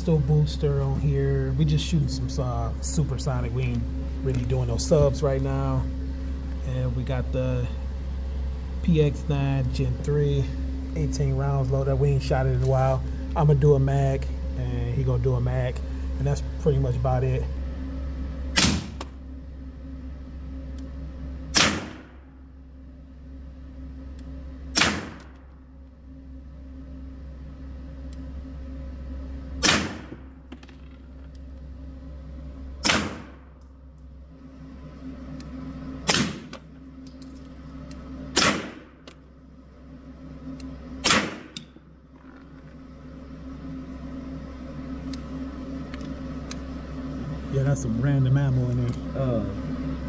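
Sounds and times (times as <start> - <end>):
steady low hum: 0.0 - 50.0
suppressed pistol shots: 21.5 - 22.0, 32.8 - 33.4, 38.4 - 38.8, 41.0 - 41.5.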